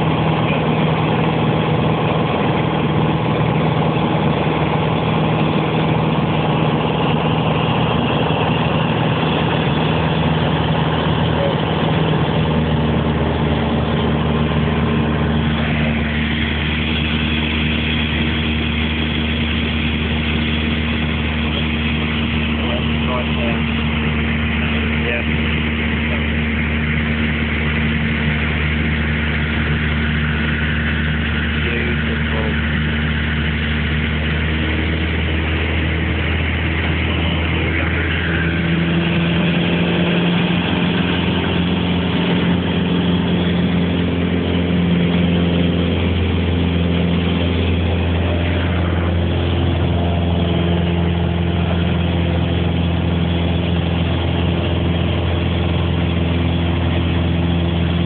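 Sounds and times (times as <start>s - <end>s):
light aircraft engine droning: 0.0s - 58.0s.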